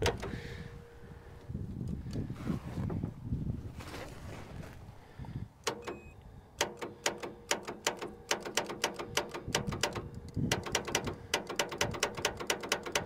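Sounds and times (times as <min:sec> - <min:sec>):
rapid starter clicking: 0:06.6 - 0:13.0.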